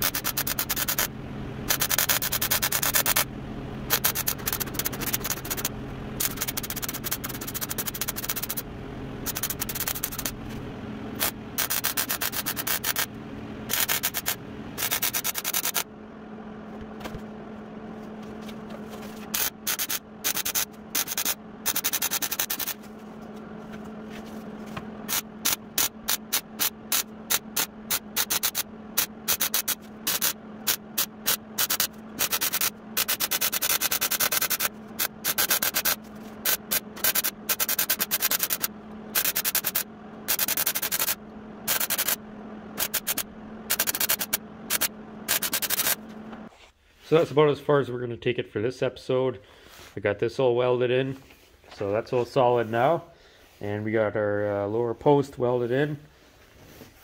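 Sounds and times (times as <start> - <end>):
welding arc crackling: 0.0 - 10.4, 11.1 - 15.9, 19.3 - 22.9, 25.0 - 46.3
steady low hum: 0.0 - 57.0.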